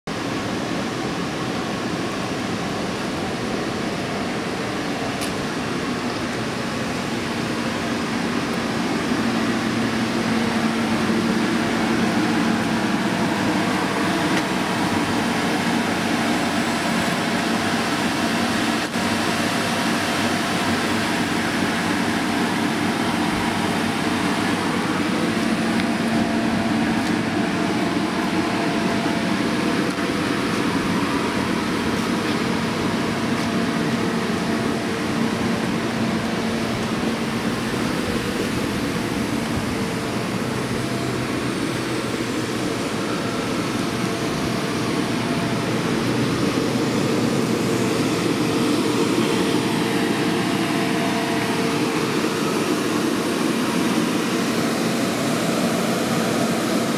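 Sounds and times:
electric blower fan drone: 0.1s - 56.9s.

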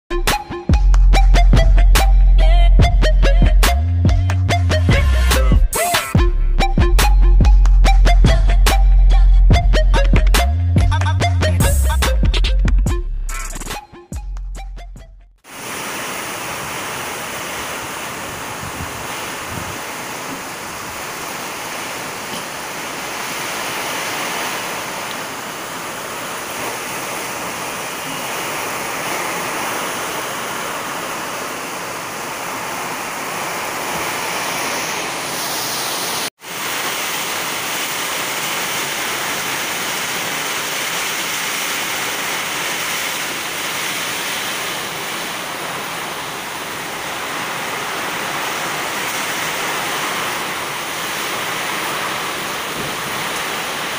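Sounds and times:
heavy rain pouring: 15.4s - 53.9s.

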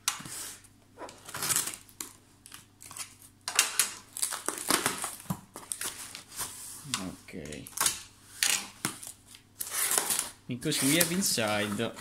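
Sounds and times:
cardboard scraping and rustling: 9.0s - 12.0s
box cutter slicing tape: 9.6s - 11.2s.

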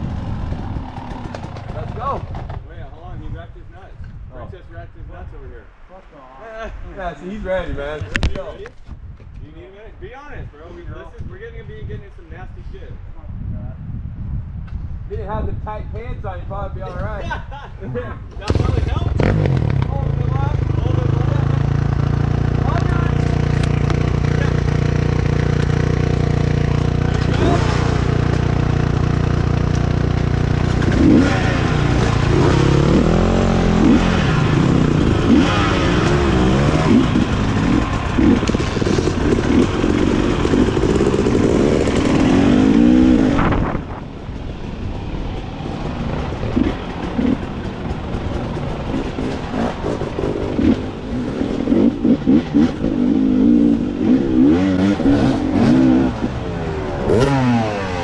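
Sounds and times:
dirt bike engines revving: 0.0s - 3.2s, 16.9s - 58.0s.

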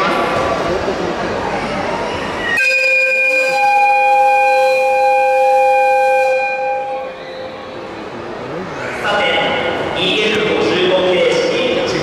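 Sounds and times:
locomotive whistle chord: 2.5s - 7.8s.

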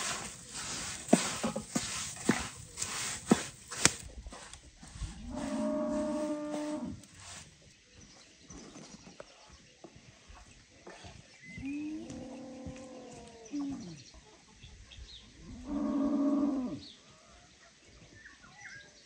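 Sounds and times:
cow mooing: 5.2s - 7.0s, 15.6s - 16.8s
faint bird chirps: 7.6s - 16.0s.

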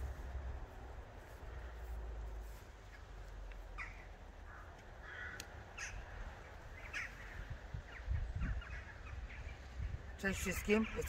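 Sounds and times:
low steady rumble: 0.0s - 10.2s
birds calling: 2.8s - 11.0s.

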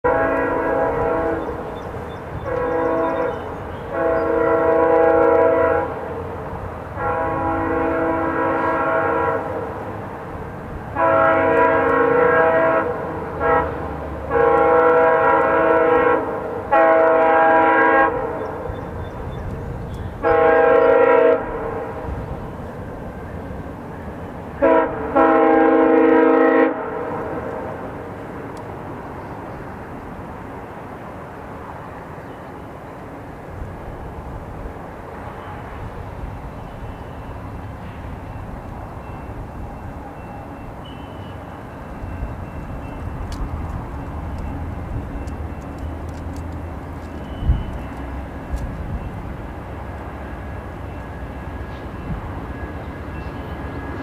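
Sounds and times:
train air horn blasts: 0.0s - 6.3s, 6.9s - 10.0s, 10.9s - 18.7s, 20.1s - 22.3s, 24.6s - 28.0s.

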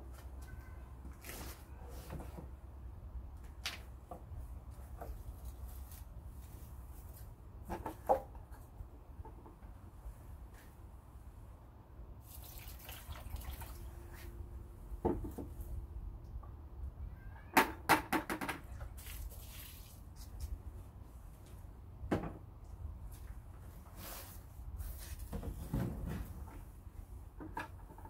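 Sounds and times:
water sloshing and splashing: 12.2s - 14.4s, 18.8s - 20.4s.

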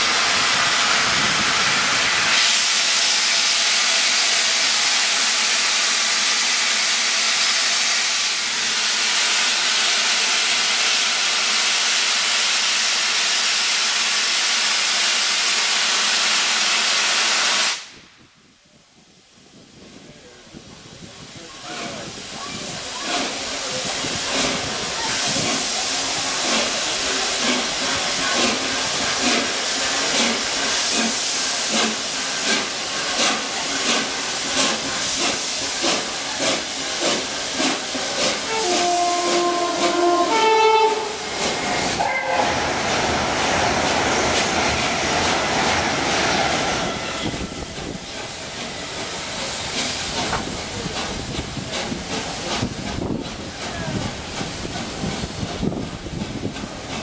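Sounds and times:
steam hiss: 0.0s - 57.0s
steam locomotive exhaust chuffs: 20.5s - 57.0s
train whistle: 38.4s - 41.3s, 42.0s - 42.6s.

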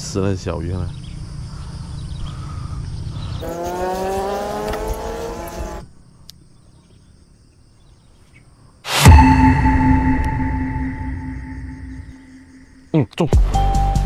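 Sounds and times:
engine revving: 3.4s - 5.8s.

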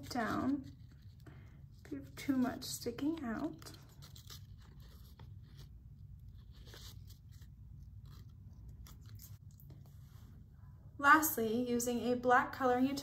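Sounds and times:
paper rustling: 0.0s - 10.0s
low room hum: 0.0s - 13.0s.

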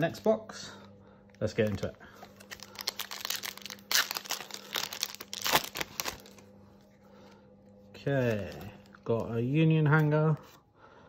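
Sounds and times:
foil wrapper crinkling and tearing: 1.6s - 6.5s.

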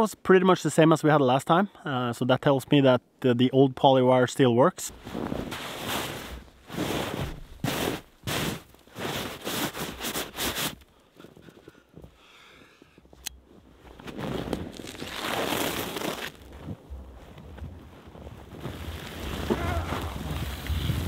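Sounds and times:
snow crunching and scraping: 4.8s - 11.6s, 13.5s - 21.0s
snow rustling: 4.9s - 11.5s, 13.7s - 21.0s.

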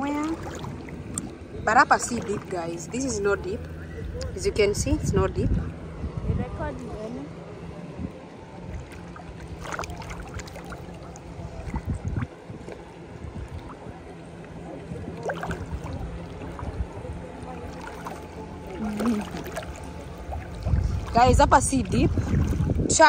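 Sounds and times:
distant voices: 0.0s - 23.0s
low hum: 0.0s - 23.0s
water lapping and splashing: 0.0s - 23.0s.

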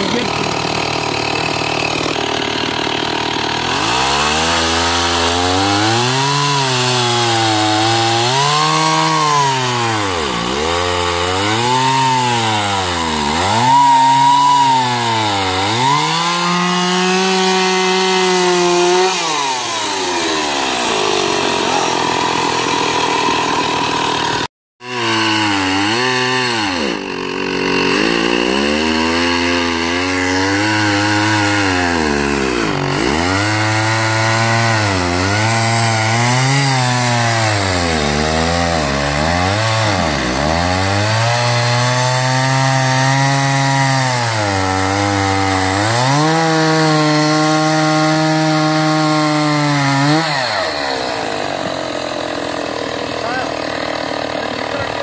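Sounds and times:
chainsaw revving: 0.0s - 55.0s.

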